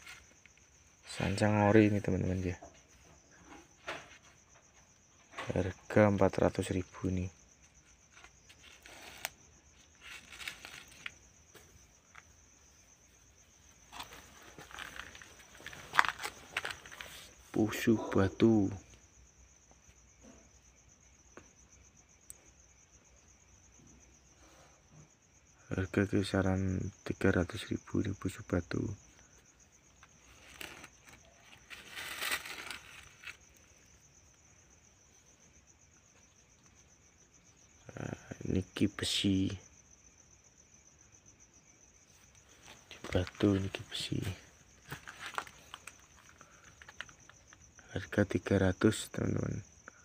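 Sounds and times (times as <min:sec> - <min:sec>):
handling rustle and scrape: 0:00.0 - 0:02.1, 0:07.6 - 0:12.4, 0:13.4 - 0:17.6, 0:29.9 - 0:34.1, 0:42.1 - 0:47.6
crickets chirring: 0:00.0 - 0:50.0
insect trilling: 0:00.0 - 0:50.0
handling rustles and clicks: 0:13.9 - 0:17.4, 0:30.0 - 0:33.5, 0:44.8 - 0:47.6.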